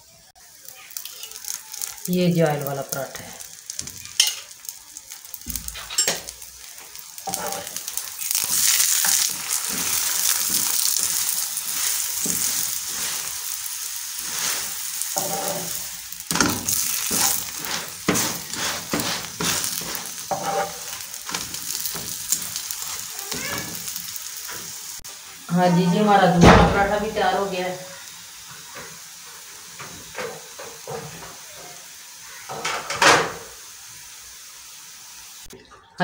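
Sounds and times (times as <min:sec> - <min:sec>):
flatbread sizzling in oil: 0:00.0 - 0:35.6
metal spatula scraping pan: 0:07.2 - 0:13.4, 0:14.2 - 0:23.8.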